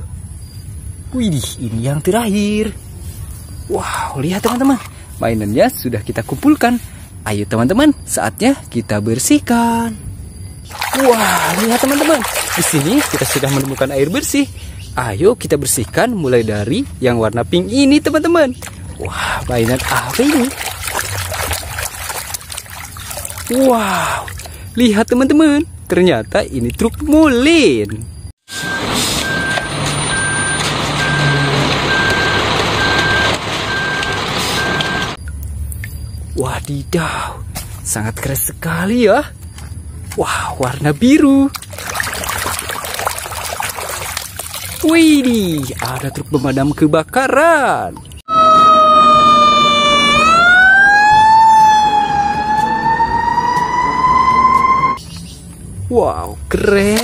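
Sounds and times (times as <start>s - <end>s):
fire engine siren wailing: 28.5s - 35.2s, 48.3s - 55.0s
truck engine: 28.5s - 35.2s
truck backup alarm beeping: 28.5s - 35.3s, 48.3s - 55.0s.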